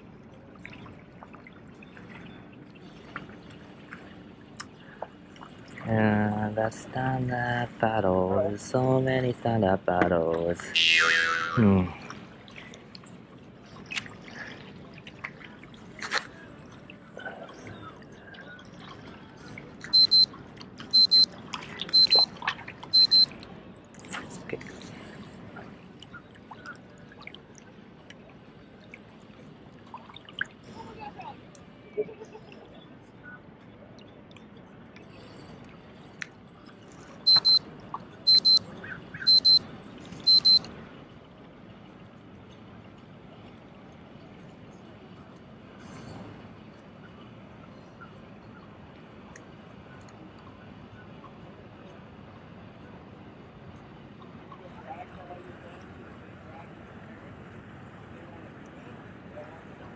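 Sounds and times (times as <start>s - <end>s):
electronic alert beeps: 10.8s - 11.6s, 20.0s - 20.3s, 21.0s - 21.3s, 22.0s - 22.3s, 23.0s - 23.3s, 37.3s - 37.6s, 38.3s - 38.6s, 39.3s - 39.6s, 40.3s - 40.6s.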